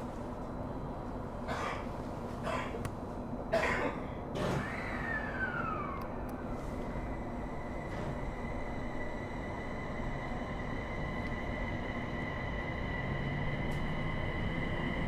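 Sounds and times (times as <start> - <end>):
train interior rumble: 0.0 - 15.0
person coughing: 1.5 - 2.8, 3.5 - 4.2.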